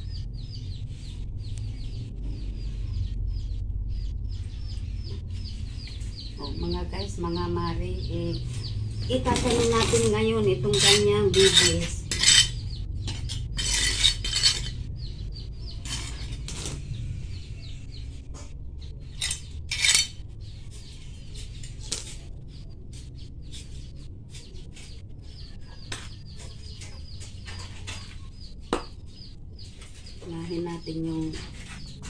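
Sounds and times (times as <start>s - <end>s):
trowel scraping through soil: 9.2s - 14.8s.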